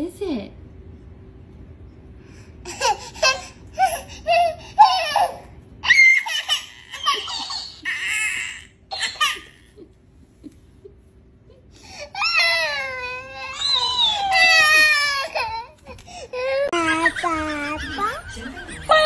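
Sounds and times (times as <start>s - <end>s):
baby crying: 12.0s - 17.7s.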